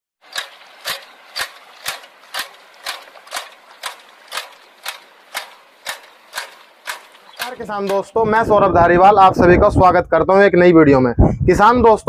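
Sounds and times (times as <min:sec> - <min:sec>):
rice transplanter clicking: 0:00.2 - 0:08.2.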